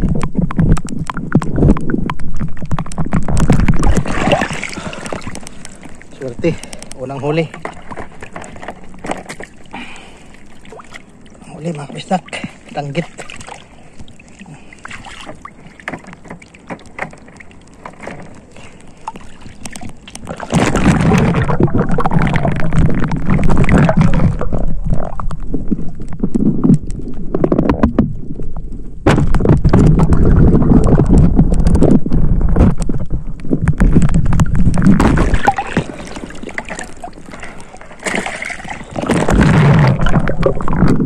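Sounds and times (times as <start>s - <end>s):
water sloshing and gurgling: 0.0s - 41.0s
small knocks: 15.2s - 18.5s.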